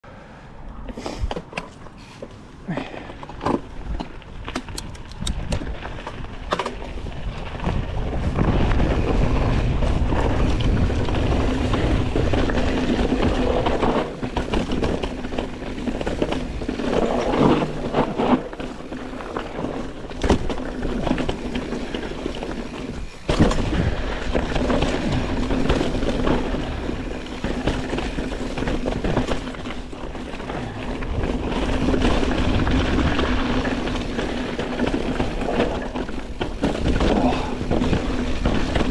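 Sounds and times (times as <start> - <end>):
bike rattling over bumps: 1.4 - 38.9
bike tyres rolling over dirt: 1.7 - 38.9
wind on microphone: 4.7 - 6.0, 7.0 - 13.9.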